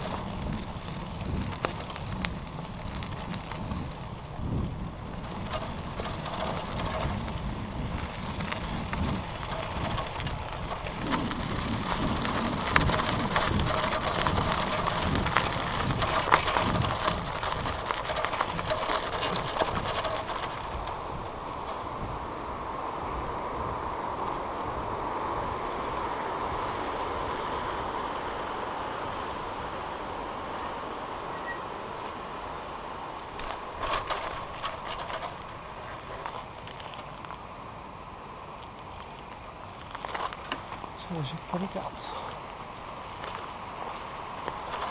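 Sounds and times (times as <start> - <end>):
bicycle rattles and clicks: 0.0 - 22.1, 24.2 - 24.5, 33.2 - 37.5, 43.2 - 44.9
bicycle tyre and road rumble: 0.0 - 44.9.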